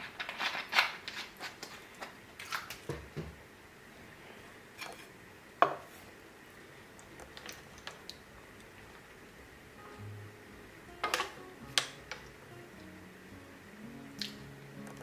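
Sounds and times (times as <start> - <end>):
tableware clinking: 11.0 - 12.2.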